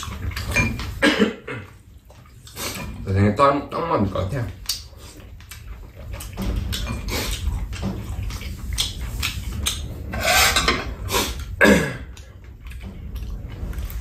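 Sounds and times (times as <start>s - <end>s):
slurping mouth sounds: 0.0s - 3.0s, 4.6s - 12.8s.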